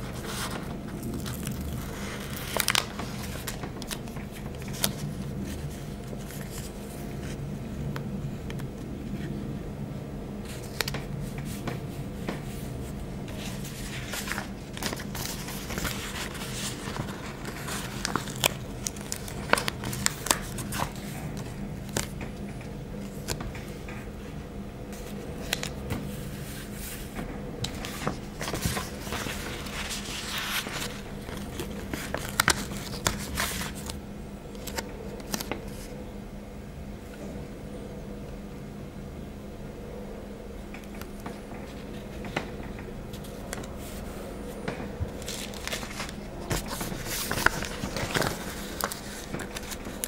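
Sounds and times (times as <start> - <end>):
stickers peeling and crinkling: 0.0 - 7.4, 10.4 - 12.7, 13.3 - 23.8, 27.6 - 36.0, 44.7 - 50.0
steady low hum: 0.0 - 50.0.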